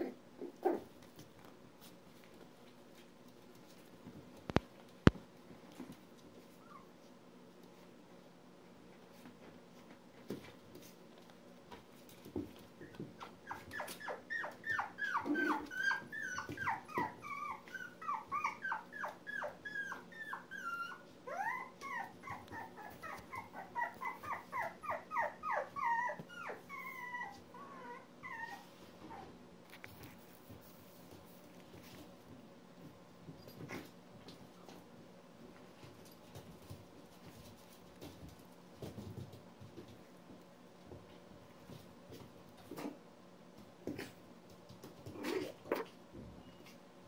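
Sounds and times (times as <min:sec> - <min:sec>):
puppies whining: 0:12.8 - 0:29.3.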